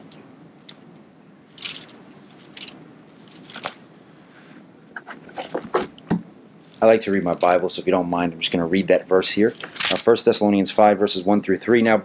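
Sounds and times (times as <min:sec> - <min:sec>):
rustles and soft clicks: 0:00.0 - 0:03.9
room hum: 0:00.0 - 0:12.0.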